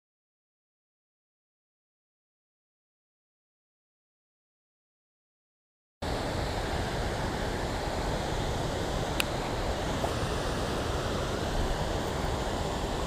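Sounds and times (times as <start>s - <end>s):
river water over weir: 6.0s - 13.0s
light click: 9.2s - 9.4s.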